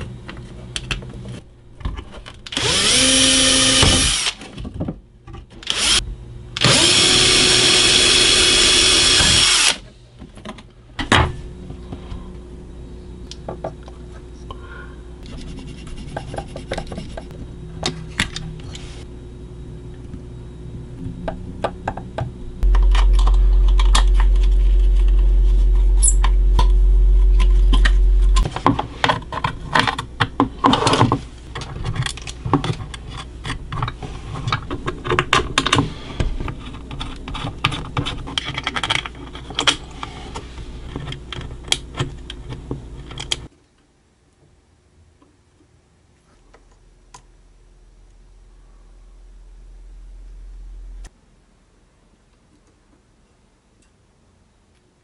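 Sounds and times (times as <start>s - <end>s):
loud low hum: 9.9s - 16.2s, 16.9s - 28.7s, 46.8s - 51.9s.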